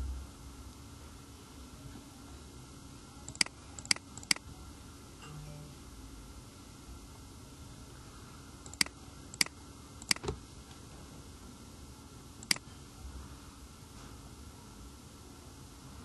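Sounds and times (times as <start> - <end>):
computer mouse clicking: 3.3 - 4.4, 8.6 - 10.3, 12.4 - 12.6.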